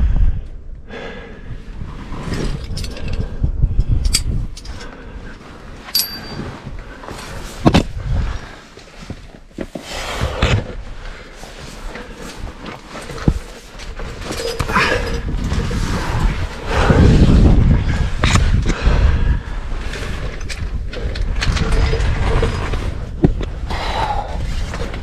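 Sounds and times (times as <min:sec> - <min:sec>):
carabiner clinking: 0:02.4 - 0:03.2, 0:03.8 - 0:04.8, 0:05.8 - 0:06.7, 0:13.0 - 0:15.7.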